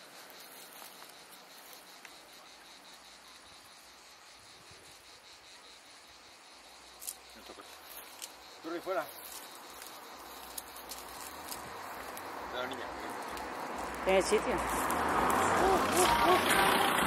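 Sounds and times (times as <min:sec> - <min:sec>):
insects chirping: 0:00.0 - 0:17.0.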